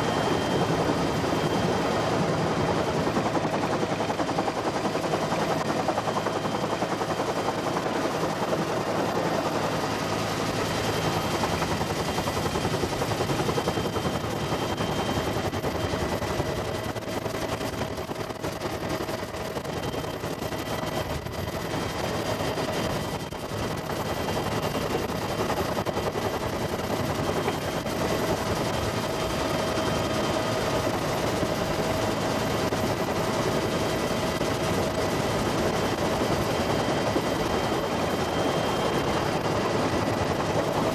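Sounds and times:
helicopter rotor beat: 0:00.0 - 0:40.9.

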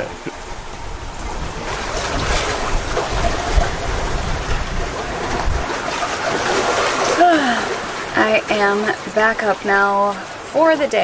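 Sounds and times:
wind rumbling on microphone: 0:00.0 - 0:08.5
sea water rushing past boat: 0:00.0 - 0:11.0.

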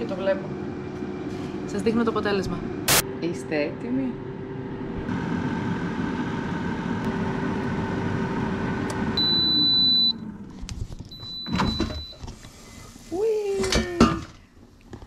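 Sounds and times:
air fryer fan running: 0:00.0 - 0:13.4
long timer beep: 0:09.2 - 0:10.2.

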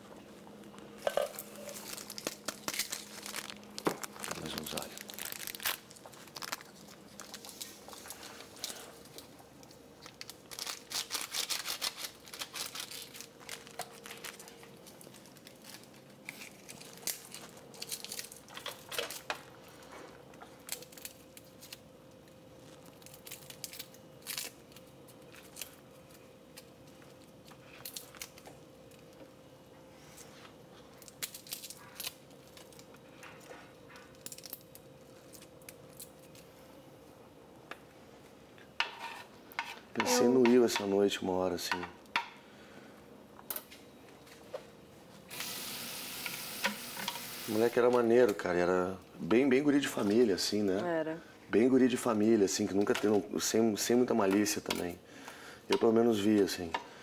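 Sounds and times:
faint steady hum: 0:00.0 - 0:57.0
garlic skins crackling as peeled: 0:01.4 - 0:19.3, 0:22.6 - 0:28.5.

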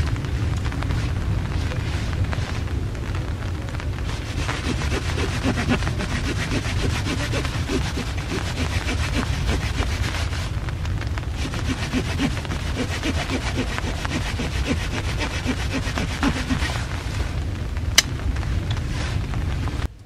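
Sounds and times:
wind rumble on microphone: 0:00.0 - 0:20.0
knife shaving wooden stick: 0:04.1 - 0:10.5, 0:11.2 - 0:16.9.

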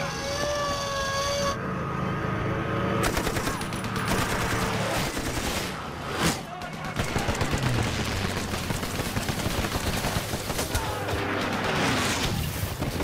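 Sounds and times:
low steady drone: 0:00.0 - 0:05.2
machine-gun fire: 0:06.6 - 0:13.0.

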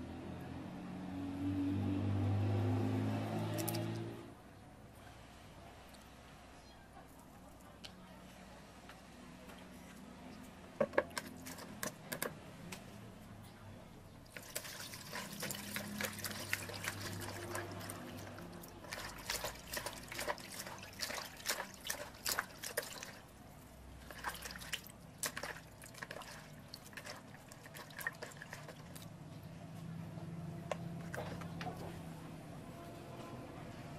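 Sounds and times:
hands splashing in water: 0:14.3 - 0:23.2, 0:24.1 - 0:29.0.

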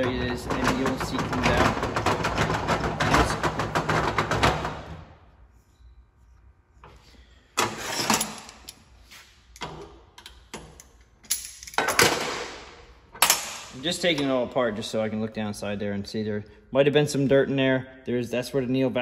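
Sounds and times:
metal clanks and clinks: 0:10.6 - 0:12.3.

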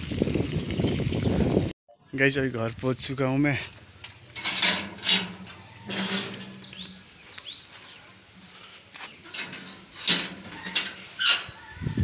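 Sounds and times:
metal latch clanking: 0:04.3 - 0:07.0, 0:09.2 - 0:11.5
high chirp-like squeaks: 0:04.3 - 0:08.2, 0:09.0 - 0:12.0.

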